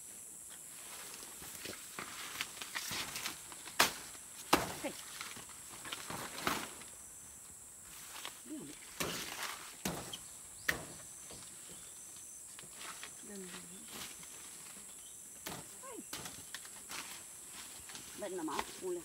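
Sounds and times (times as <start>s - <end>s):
high insect buzz: 0.0s - 19.0s
leaves and twigs rustling: 0.0s - 19.0s
footsteps through undergrowth: 0.5s - 7.0s, 7.8s - 19.0s
twigs snapping: 2.0s - 6.9s.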